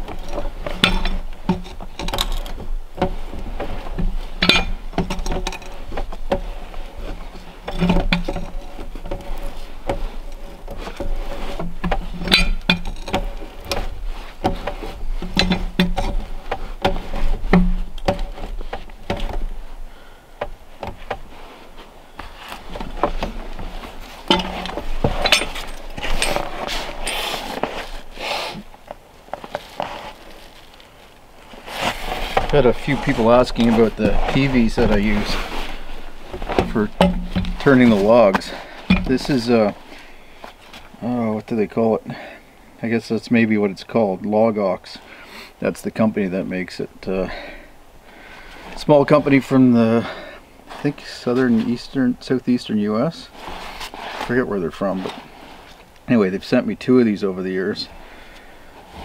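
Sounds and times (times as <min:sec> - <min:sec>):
metal hook knocking on log: 0:04.4 - 0:06.5, 0:24.3 - 0:25.8, 0:36.5 - 0:39.3.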